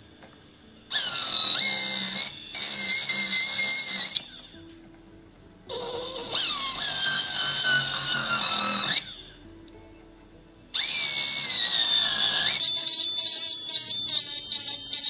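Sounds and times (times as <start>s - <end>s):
rotary handpiece whining: 0.9s - 4.6s, 5.7s - 9.4s, 10.8s - 15.0s.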